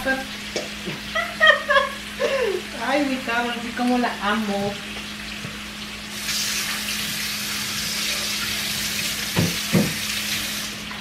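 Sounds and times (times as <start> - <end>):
meat sizzling in a frying pan: 1.7 - 10.9
tap running into sink: 6.3 - 11.0.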